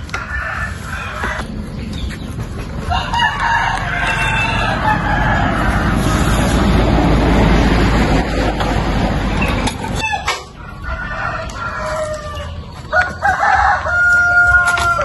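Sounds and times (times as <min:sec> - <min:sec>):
steady rushing noise: 0:00.0 - 0:10.8
rooster crowing: 0:00.1 - 0:01.5, 0:02.8 - 0:06.6, 0:10.0 - 0:15.0.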